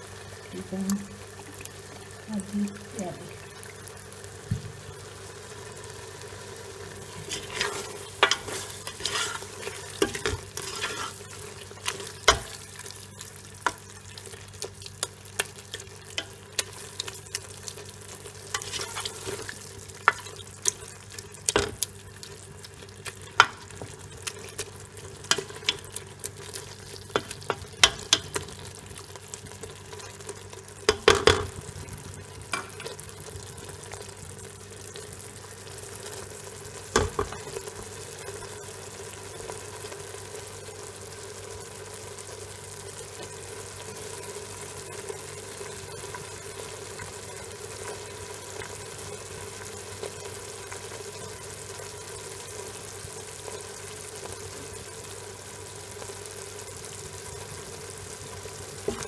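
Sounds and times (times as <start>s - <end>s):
tripe sizzling in oil: 0.0s - 59.0s
spoon scraping and knocking pot: 7.2s - 11.2s.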